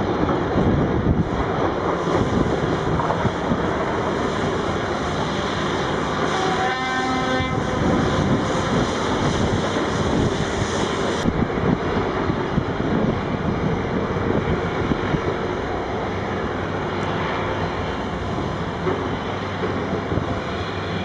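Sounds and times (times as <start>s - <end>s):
horn sounding: 6.4s - 7.6s.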